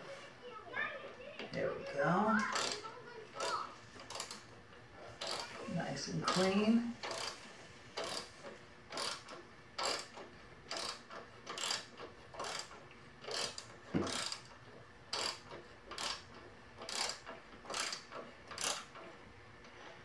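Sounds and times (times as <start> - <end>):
socket ratchet clicking: 2.4 - 4.5, 5.2 - 5.6, 6.3 - 7.4, 8.0 - 14.5, 15.1 - 19.1.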